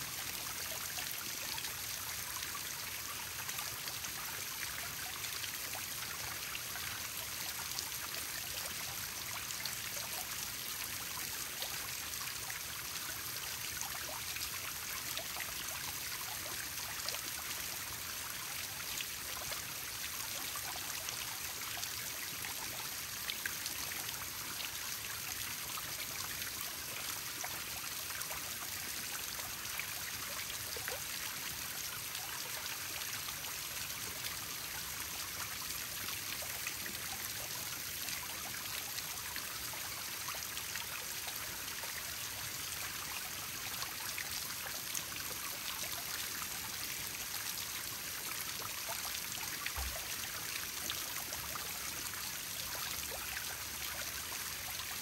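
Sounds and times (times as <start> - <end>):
waterfall splashing into pond: 0.0 - 55.0.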